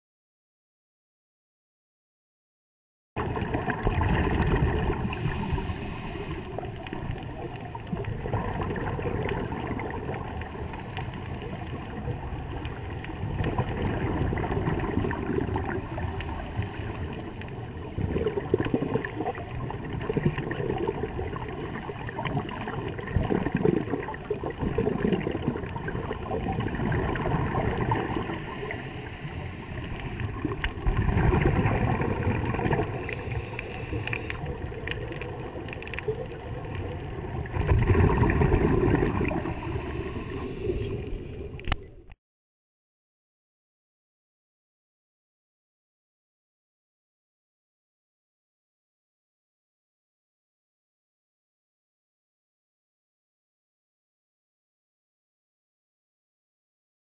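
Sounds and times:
rushing water noise: 3.2 - 41.9
exhaled bubbles gurgling: 3.2 - 42.1
scuba regulator breathing: 5.3 - 6.7, 33.1 - 34.6.

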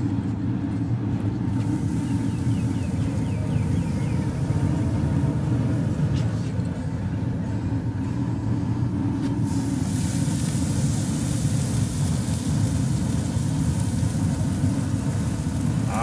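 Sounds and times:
faint hiss: 9.3 - 16.0.

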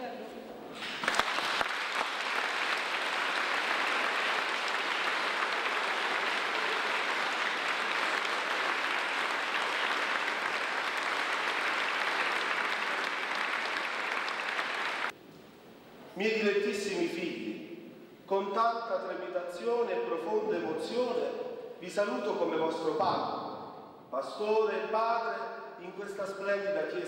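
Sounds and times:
congregation applauding: 0.8 - 15.2.

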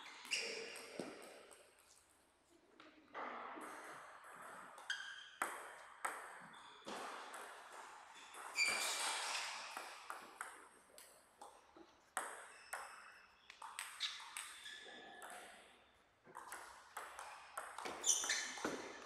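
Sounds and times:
ball bouncing on table: 3.1 - 15.6, 16.3 - 19.0
table tennis ball hitting rackets: 3.6 - 19.0.

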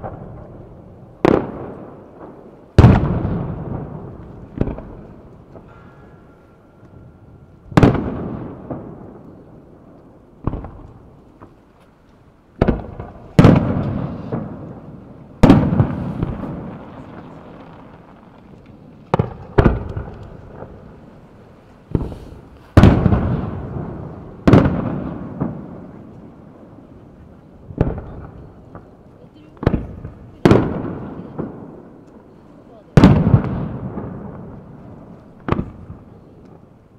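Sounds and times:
firework booms with echo: 0.0 - 5.9, 7.6 - 11.6, 12.6 - 36.8.

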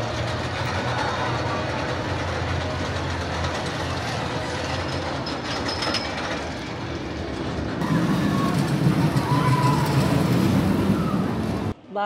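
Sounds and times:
roller coaster rumbling on track: 0.0 - 11.8
high wheel squeal: 7.8 - 11.7.

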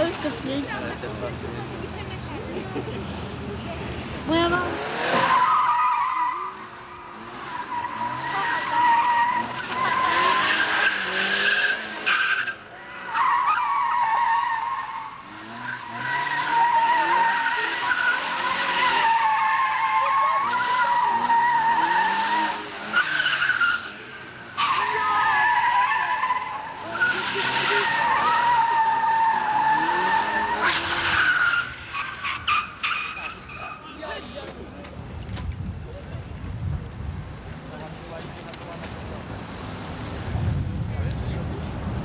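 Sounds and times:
car engine revving: 3.0 - 33.9
car tyres squealing on tarmac: 4.3 - 34.5.

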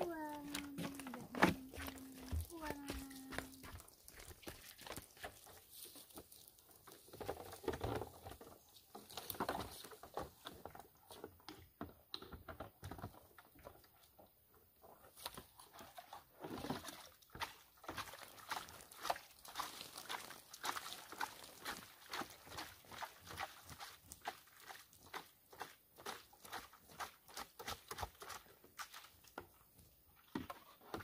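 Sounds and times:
scuffing footsteps on dry ground: 0.4 - 6.1
plastic bucket knocks and rustles: 0.5 - 3.4, 7.0 - 13.6, 30.2 - 31.0.

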